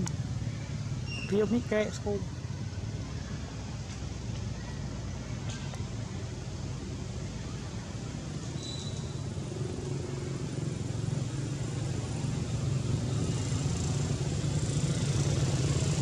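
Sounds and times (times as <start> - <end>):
low engine hum: 0.0 - 16.0.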